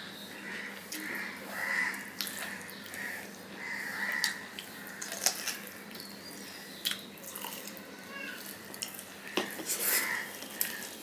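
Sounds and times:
close-up chewing and mouth sounds: 1.9 - 3.3, 4.0 - 11.0.

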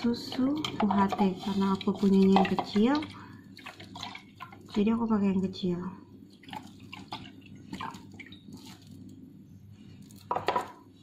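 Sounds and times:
milk dripping into jug: 6.3 - 9.2.

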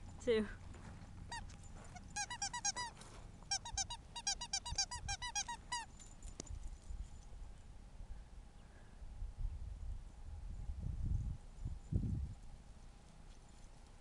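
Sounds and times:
dog squeaky toy squeaking: 1.3 - 6.0.

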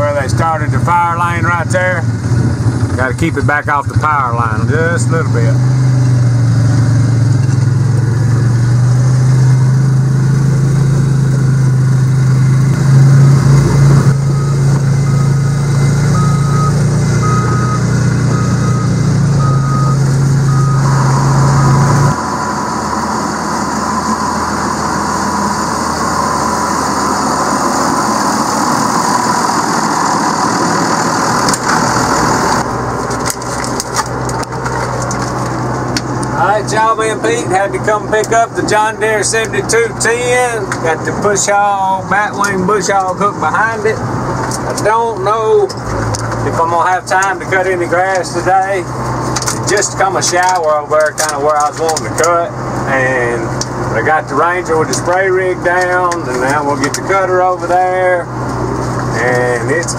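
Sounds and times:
quieter engine hum: 0.0 - 59.9
vehicle engine drone: 0.0 - 59.9
faint repeating beep: 14.3 - 22.0.

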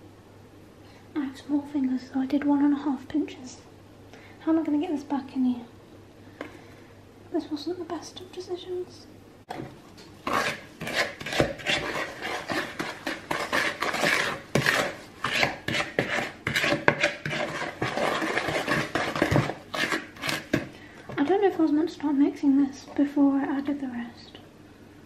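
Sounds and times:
wooden spoon stirring batter in bowl: 9.5 - 21.5.

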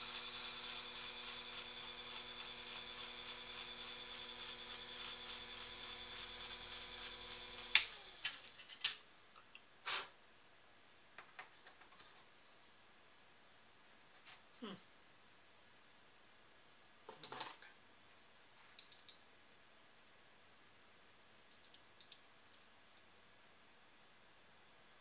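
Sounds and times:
electric motor humming: 0.0 - 8.6.

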